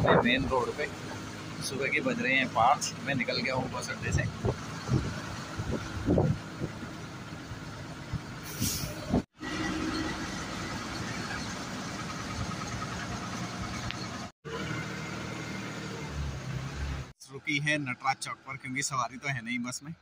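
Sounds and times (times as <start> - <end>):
bus engine and road rumble: 0.0 - 20.0
short hiss: 8.4 - 9.0.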